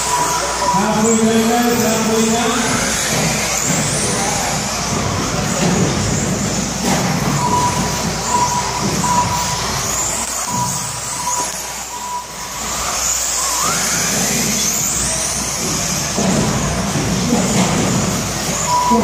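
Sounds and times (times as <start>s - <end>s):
short electronic beeps: 0.0s - 2.8s, 7.2s - 14.0s, 18.5s - 19.0s
toy car motors whining: 0.0s - 19.0s
tyre and chassis noise: 0.0s - 19.0s.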